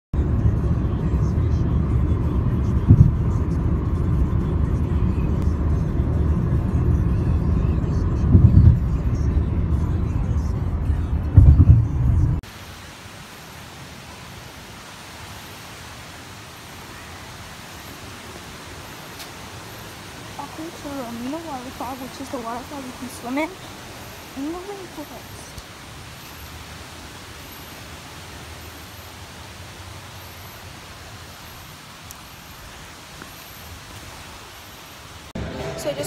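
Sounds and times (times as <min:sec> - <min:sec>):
car road noise rumble: 0:00.2 - 0:12.8, 0:14.0 - 0:36.0
steady hiss: 0:12.4 - 0:35.4.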